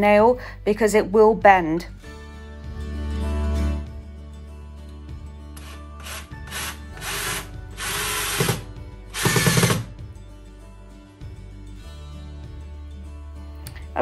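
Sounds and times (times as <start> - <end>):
cordless drill driving screw: 5.6 - 9.9.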